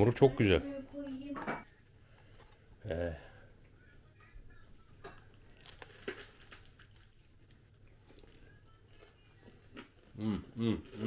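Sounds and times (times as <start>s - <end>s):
faint chewing: 5.1s - 11.0s
crunchy bites of crisp bread: 5.5s - 7.1s.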